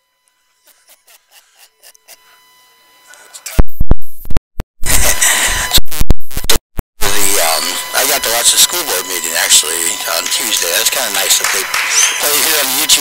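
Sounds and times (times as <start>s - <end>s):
harsh distorted crackle: 5.7s - 6.6s.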